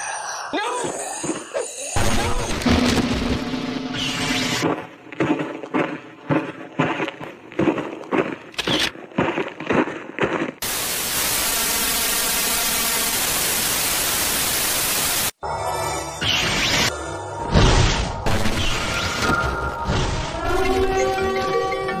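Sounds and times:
loud static hiss: 0:10.6 - 0:15.4.

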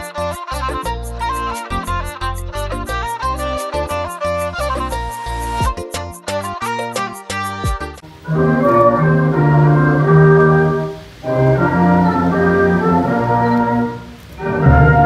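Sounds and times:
organ-like keyboard chords: 0:08.0 - 0:15.0.

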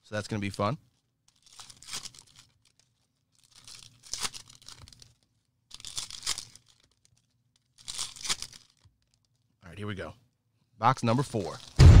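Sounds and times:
wrapping tearing and crumpling: 0:00.9 - 0:09.5, 0:11.2 - 0:11.8.

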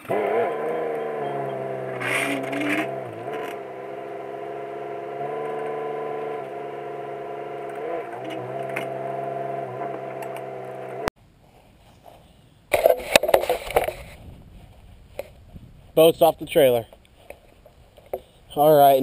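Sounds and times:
low humming drone: 0:00.0 - 0:11.1.

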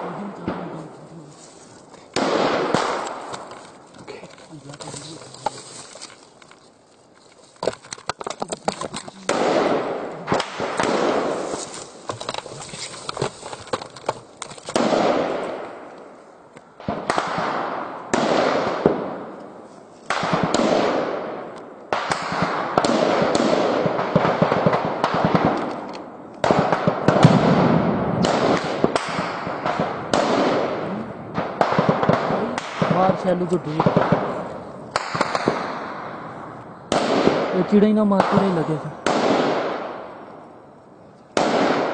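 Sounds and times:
rifle shots echoing: 0:02.1 - 0:03.8, 0:09.1 - 0:12.1, 0:14.7 - 0:16.2, 0:16.8 - 0:19.4, 0:20.1 - 0:40.6, 0:41.4 - 0:41.9.

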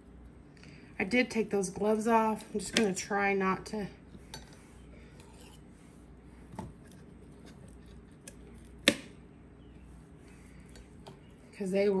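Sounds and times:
metal spoon scraping a tub: 0:04.4 - 0:05.7.

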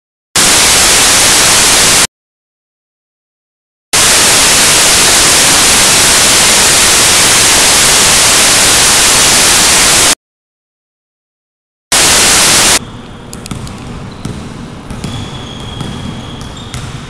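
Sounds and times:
loud static hiss: 0:00.4 - 0:02.1, 0:04.0 - 0:10.2, 0:11.9 - 0:12.9.

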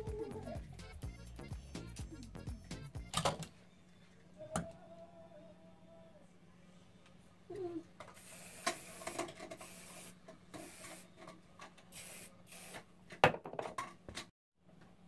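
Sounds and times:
aerosol can spraying: 0:08.1 - 0:11.1, 0:11.9 - 0:12.8.

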